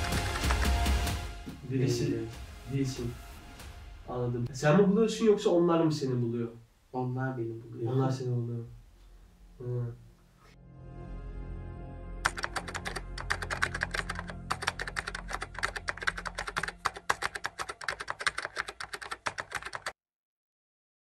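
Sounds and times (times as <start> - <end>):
rapid keyboard typing: 0.0 - 1.0, 12.2 - 20.0
background music with low drone: 0.0 - 4.5, 9.4 - 17.8.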